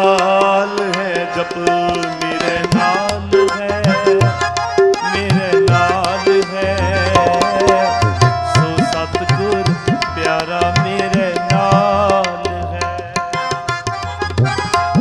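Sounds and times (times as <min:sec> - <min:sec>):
tabla playing a rhythm: 0:00.0 - 0:15.0
sustained wavering melody: 0:07.1 - 0:08.9.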